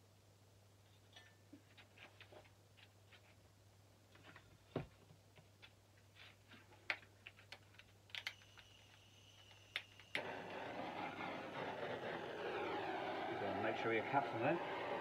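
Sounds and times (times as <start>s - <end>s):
small clicks and taps: 6.7s - 10.2s
butane torch clicking alight: 7.5s - 15.0s
torch flame hissing: 10.1s - 15.0s.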